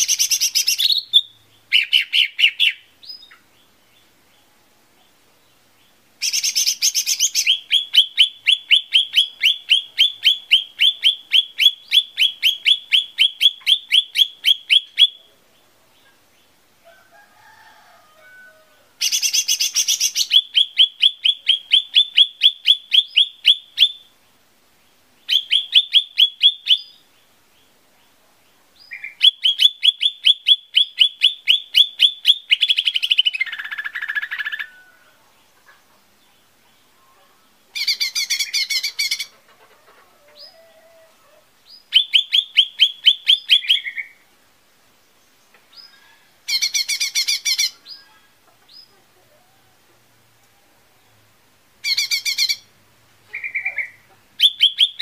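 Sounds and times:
bird singing high chirps: 0.0s - 4.0s, 6.2s - 15.3s, 19.0s - 24.1s, 25.2s - 27.0s, 28.8s - 34.9s, 37.8s - 39.3s, 41.7s - 44.2s, 45.7s - 48.9s, 51.8s - 52.7s, 53.3s - 55.0s.

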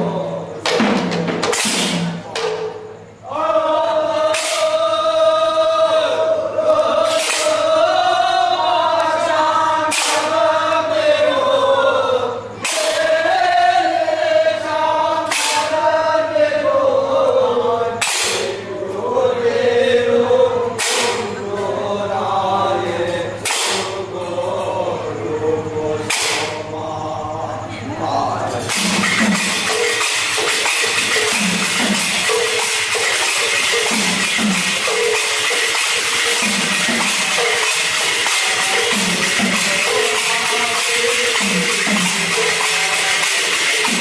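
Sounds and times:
group singing slow chant: 0.0s - 0.8s, 1.8s - 44.0s
sharp percussion strike: 0.0s - 3.2s, 4.3s - 4.8s, 7.0s - 7.7s, 9.8s - 10.4s, 12.5s - 13.0s, 15.2s - 15.8s, 18.0s - 18.5s, 20.8s - 21.3s, 23.4s - 24.4s, 26.1s - 26.7s, 28.6s - 44.0s.

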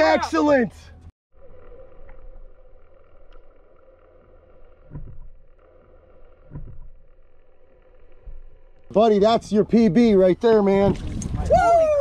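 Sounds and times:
dull low thumps: 6.4s - 7.0s, 10.8s - 11.7s.

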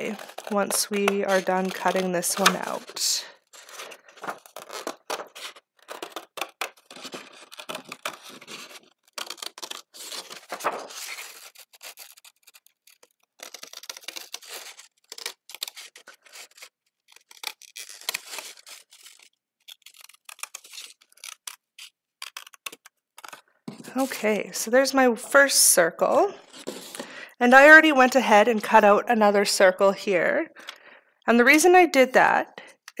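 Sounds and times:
scissors snipping cardstock: 0.0s - 24.0s
paper sheet rustling: 0.0s - 24.2s, 26.3s - 27.2s.

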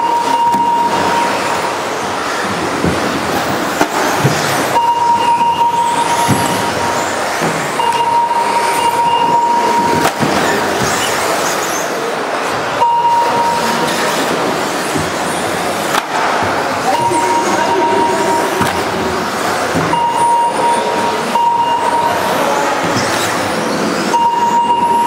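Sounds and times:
steady high tone: 4.7s - 10.8s, 12.8s - 14.5s, 16.8s - 19.2s, 19.8s - 22.9s
model cars whirring: 9.9s - 12.8s, 13.6s - 16.8s.

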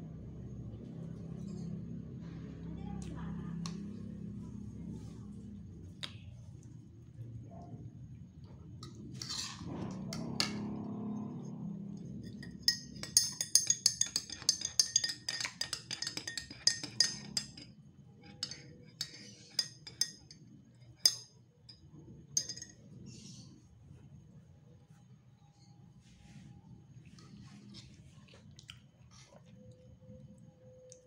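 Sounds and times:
metal spoon clinking on tableware: 8.8s - 10.6s, 12.2s - 22.8s.

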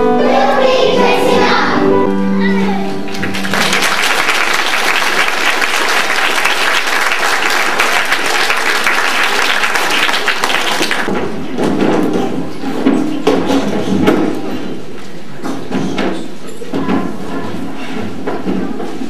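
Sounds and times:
audience clapping: 3.1s - 11.1s.

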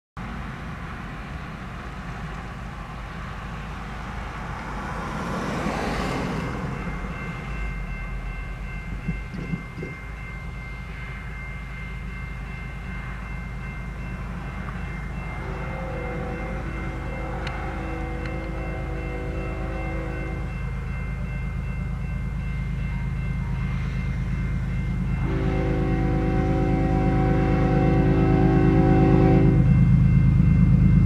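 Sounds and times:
car passing: 0.2s - 9.9s
crossing warning bell ringing: 1.1s - 31.0s
distant locomotive horn: 14.6s - 21.0s, 25.0s - 30.1s.

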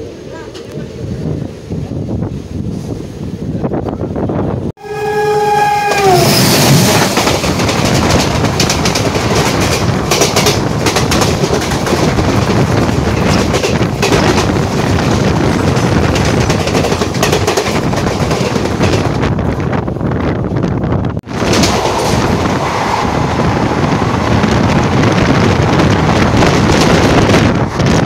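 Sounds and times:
passing train rushing and clacking: 0.0s - 28.0s
train horn: 4.8s - 7.0s.

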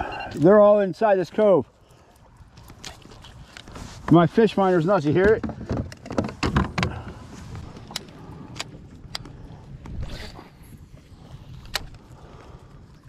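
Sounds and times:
reel and rod clicks: 7.7s - 10.5s, 11.2s - 12.2s.

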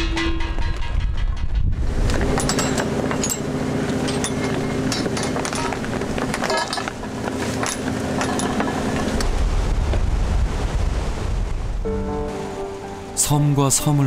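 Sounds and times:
sharp clicks and clanks: 0.0s - 9.3s
low rumble: 0.0s - 13.1s.

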